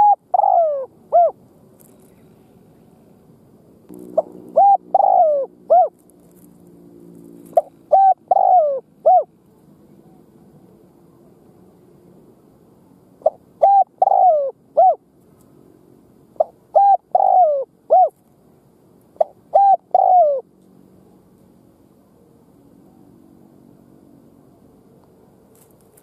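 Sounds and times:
dove cooing: 0.0 - 2.3, 3.9 - 6.5, 7.4 - 9.3, 13.2 - 15.0, 16.4 - 18.2, 19.2 - 20.5.

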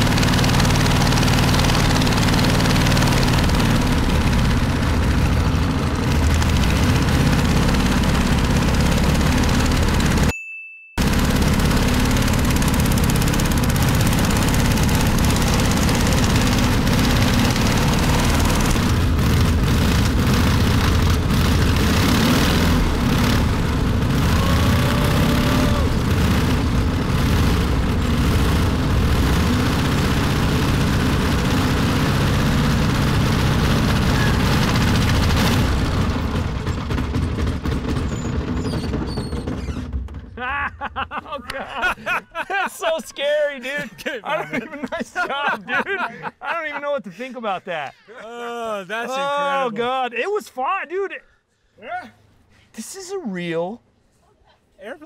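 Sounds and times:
light plane engine running: 0.0 - 10.3, 11.0 - 40.1
voices: 24.3 - 26.0, 40.4 - 52.2.

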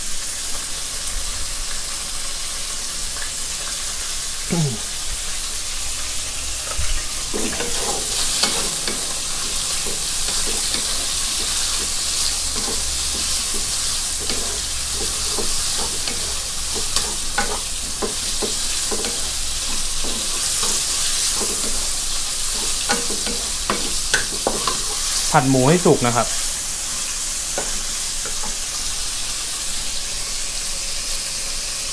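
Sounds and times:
meat sizzling in oil: 0.0 - 31.9
wooden spatula scraping pan: 6.6 - 25.3.

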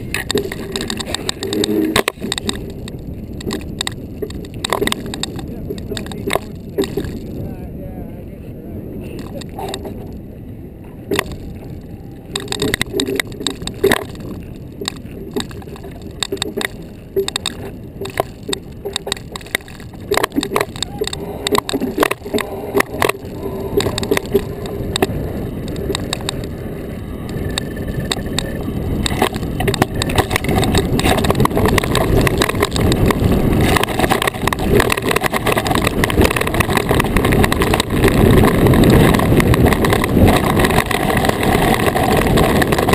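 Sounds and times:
iceboat runners scraping over ice: 0.0 - 7.4, 28.1 - 42.9
sharp clicks and knocks: 0.0 - 7.4, 9.2 - 10.2, 11.1 - 26.6, 27.2 - 42.9.

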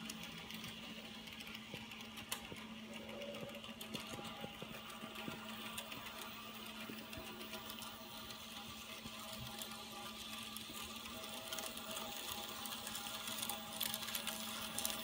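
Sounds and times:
model train motor humming: 0.0 - 15.0
wheels clicking on rails: 0.0 - 15.0.

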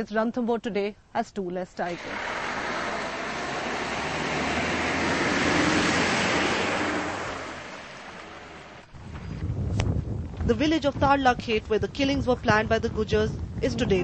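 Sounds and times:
vehicle passing by: 2.0 - 8.8.

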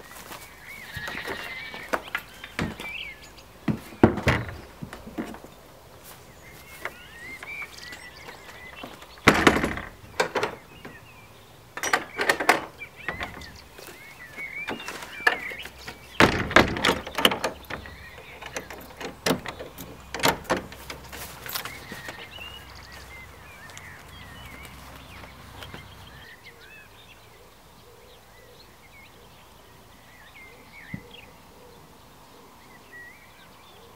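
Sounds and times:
birds chirping: 0.0 - 33.9
wooden doors knocking and thudding: 1.2 - 5.5, 6.6 - 11.1, 11.7 - 23.3.

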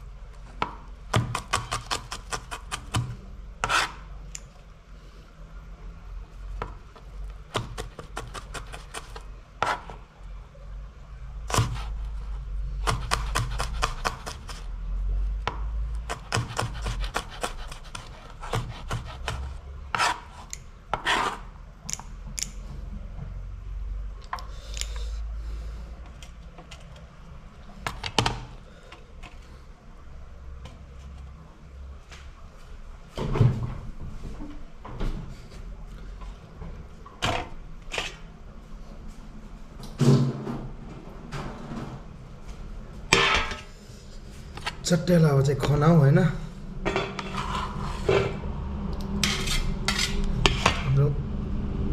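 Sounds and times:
cleaver chopping on cutting board: 16.1 - 20.2.

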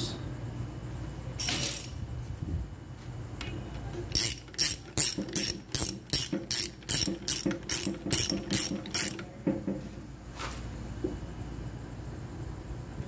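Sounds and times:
ratchet wrench clicking: 1.4 - 2.0, 4.1 - 9.2.

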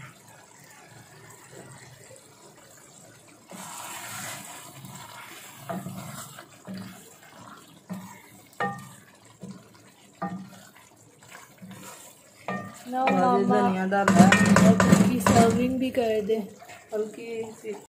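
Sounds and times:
wooden spoon stirring curry: 3.0 - 17.9
spoon knocking against pan: 7.9 - 9.6, 10.2 - 10.6, 12.4 - 13.4, 14.0 - 15.9.

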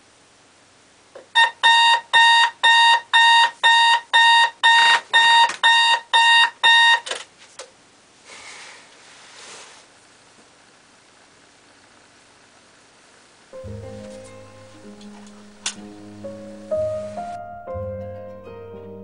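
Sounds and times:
digital alarm clock beeping: 1.4 - 7.0
alarm clock click: 14.2 - 15.9.

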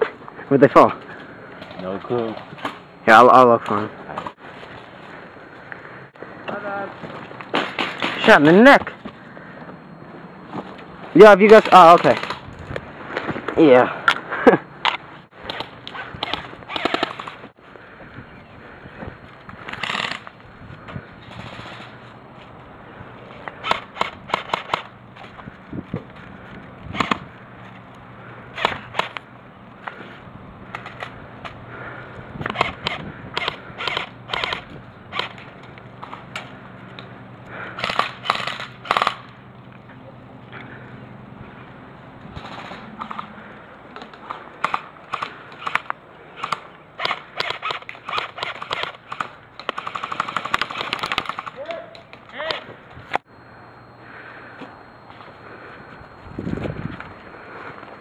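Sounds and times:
airsoft gun shots: 15.4 - 17.3, 23.6 - 24.9, 32.5 - 35.4, 37.8 - 39.3, 44.6 - 51.6.

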